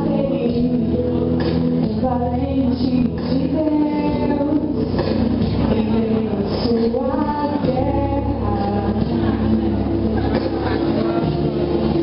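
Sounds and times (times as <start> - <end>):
instrumental backing track: 0.0 - 12.0
woman singing into microphone: 0.0 - 12.0.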